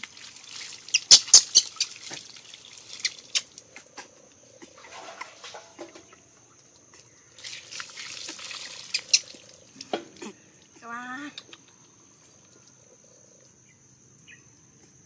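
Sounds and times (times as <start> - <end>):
water pouring and splashing: 0.0 - 3.8, 4.6 - 10.4
water dripping: 0.0 - 12.8.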